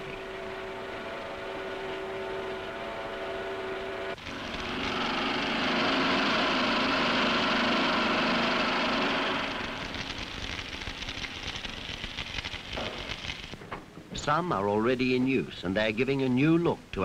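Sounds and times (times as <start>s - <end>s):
crane motor whine: 0.0s - 10.6s
arc welding hiss: 4.2s - 13.6s.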